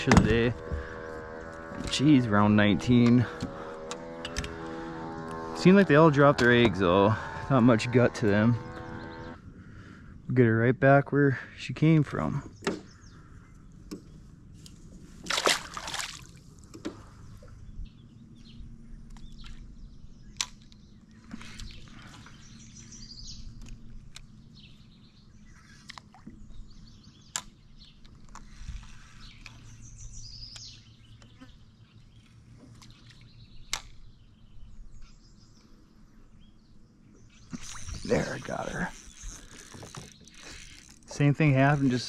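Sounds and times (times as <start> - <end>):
quiet water sounds: 11.8 - 42.0
fish splashing into water: 15.2 - 16.5.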